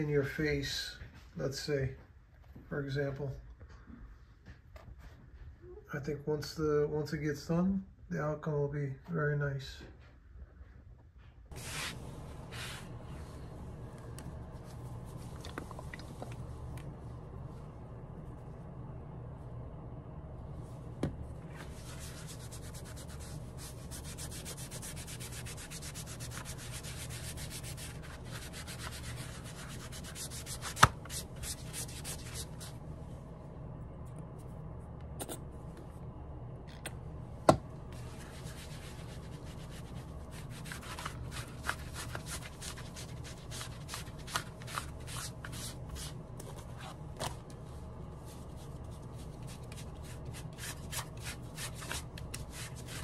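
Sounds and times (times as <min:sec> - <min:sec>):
steady low hum: 0:00.0 - 0:53.0
sponge rubbing on leather: 0:21.6 - 0:32.7, 0:38.0 - 0:46.1.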